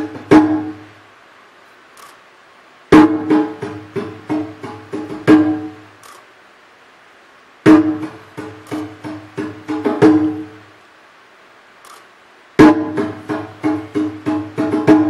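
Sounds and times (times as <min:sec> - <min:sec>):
hand drum strokes: 0:00.0 - 0:01.0, 0:02.9 - 0:05.9, 0:07.7 - 0:10.7, 0:12.6 - 0:15.0.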